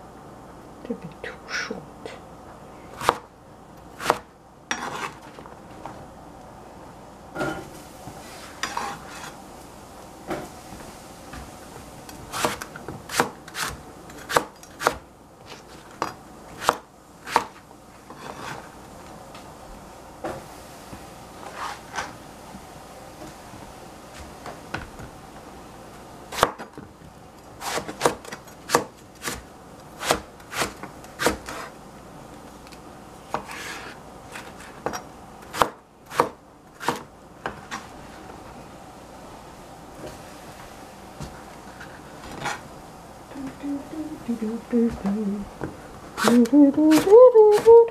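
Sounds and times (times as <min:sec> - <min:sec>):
knife chopping on plastic board: 0:03.0 - 0:03.3, 0:04.0 - 0:05.2, 0:12.3 - 0:15.6, 0:16.6 - 0:18.6, 0:27.6 - 0:29.4, 0:30.0 - 0:31.7, 0:35.5 - 0:37.6, 0:46.2 - 0:47.8.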